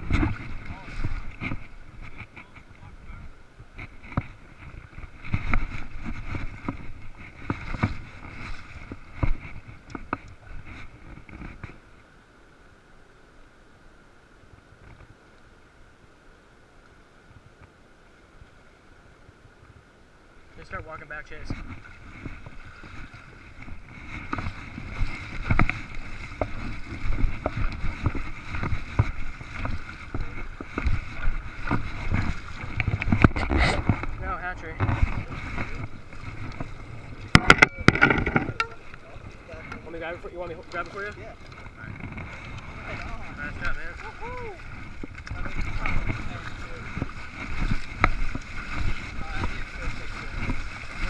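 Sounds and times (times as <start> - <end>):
water sloshing around legs: 0.0 - 12.2, 20.7 - 51.0
river rushing: 4.3 - 51.0
knocks and thumps: 37.3 - 38.8.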